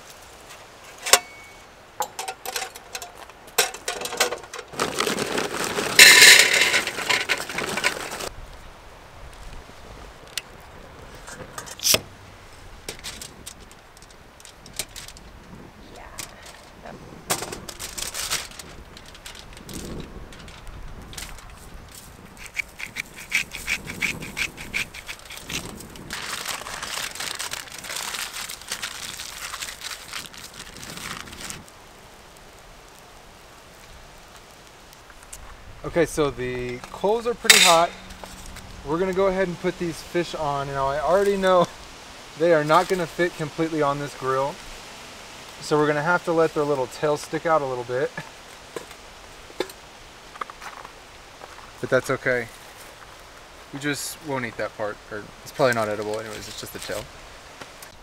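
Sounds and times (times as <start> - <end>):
metal grill legs clicking: 1.0 - 4.8, 6.0 - 8.0, 36.9 - 38.2
aluminium foil crinkling: 2.5 - 8.3, 17.6 - 31.8
charcoal pouring into metal bowl: 3.8 - 8.3
plastic bottle shaken: 4.7 - 8.3, 22.9 - 31.6.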